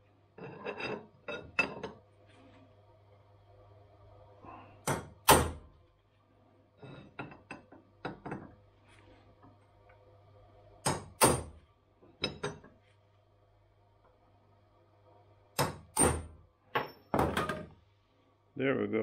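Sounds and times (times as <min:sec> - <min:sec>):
hammer striking steel punch: 0:10.8 - 0:11.5, 0:15.6 - 0:16.3.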